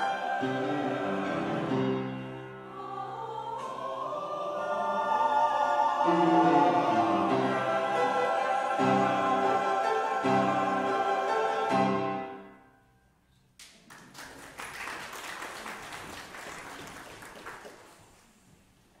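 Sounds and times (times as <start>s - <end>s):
church choir with piano: 0.0s - 13.2s
congregation applauding: 13.6s - 18.3s.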